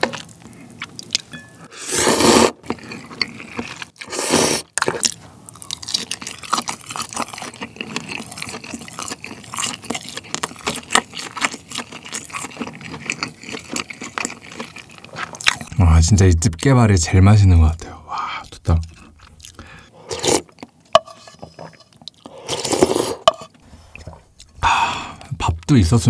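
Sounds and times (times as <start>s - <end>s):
slurping noodles: 1.7s - 5.1s, 19.0s - 20.5s, 22.2s - 24.2s
wet chewing mouth sounds: 4.7s - 15.8s, 18.4s - 20.7s.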